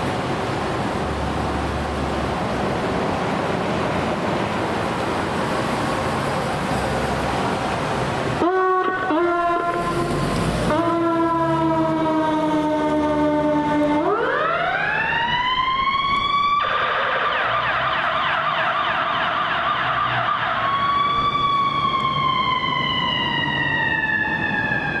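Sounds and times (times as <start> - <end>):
ambulance engine running: 0.0 - 25.0
electronic siren wailing and yelping: 8.4 - 10.1, 10.7 - 25.0.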